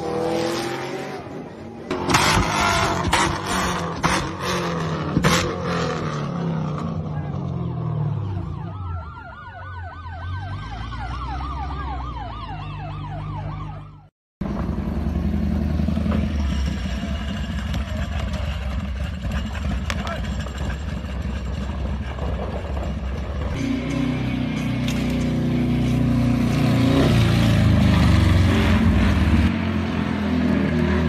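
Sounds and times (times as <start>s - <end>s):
warbling siren-like tone: 7.9s - 14.1s
motorcycle engine idling: 17.1s - 23.2s.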